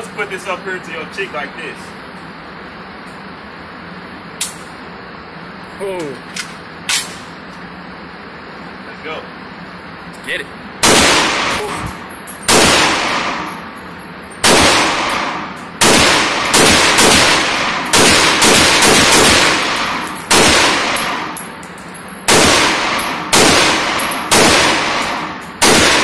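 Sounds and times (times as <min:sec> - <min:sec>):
gunshots echoing indoors: 0:10.8 - 0:13.7, 0:14.4 - 0:26.0.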